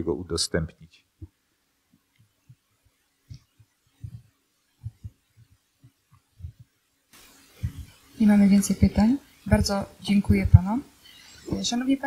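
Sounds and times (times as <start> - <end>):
microphone handling thumps: 3.3 - 8.0, 8.6 - 10.8, 11.5 - 11.8.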